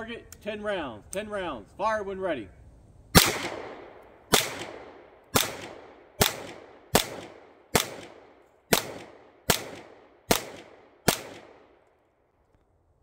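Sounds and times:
pistol shots echoing: 3.2 - 11.8.

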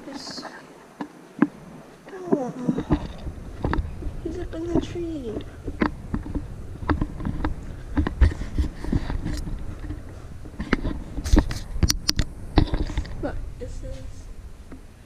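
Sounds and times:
low rumble: 1.6 - 15.0
camera handling knocks and thumps: 5.3 - 13.2.

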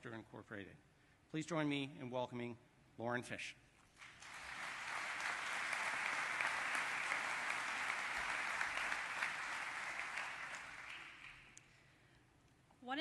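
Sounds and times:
audience applauding: 4.0 - 11.6.

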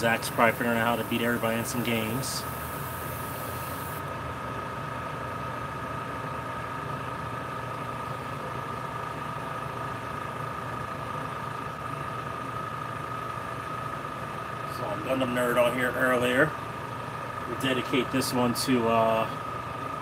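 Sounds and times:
high hiss: 0.0 - 4.0
small electric motor humming: 0.0 - 4.0.

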